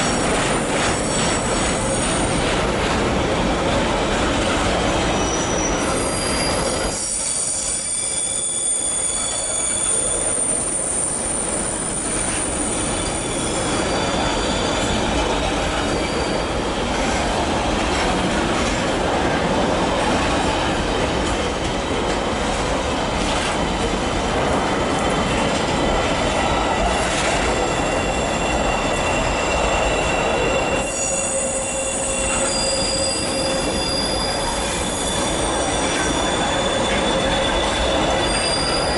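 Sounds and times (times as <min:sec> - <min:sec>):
train wheels rumbling on rails: 0:00.0 - 0:38.9
high-pitched wheel squeal: 0:05.2 - 0:16.6, 0:26.9 - 0:38.9.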